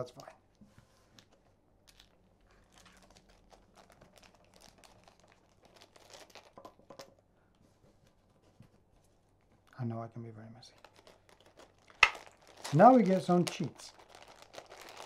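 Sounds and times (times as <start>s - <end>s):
plastic packaging crinkling: 1.2s - 7.2s, 10.7s - 15.0s.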